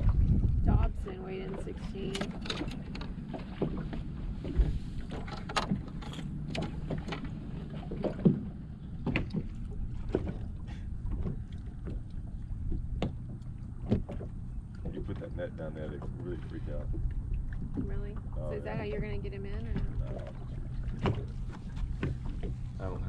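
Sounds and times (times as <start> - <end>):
wind on microphone: 0.0 - 2.5
small waves lapping against hull: 0.0 - 23.0.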